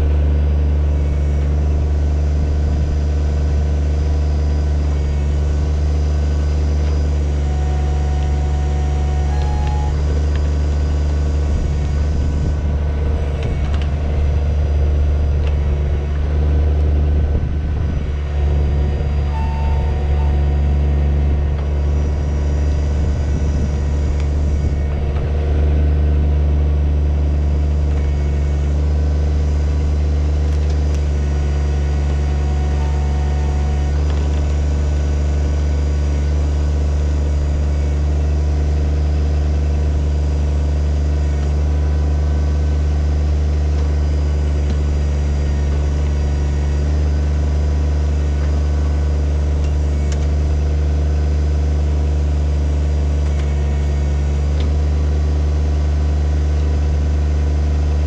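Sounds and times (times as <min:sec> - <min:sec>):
tractor diesel engine running: 0:00.0 - 0:58.0
backhoe bucket digging: 0:03.8 - 0:26.0.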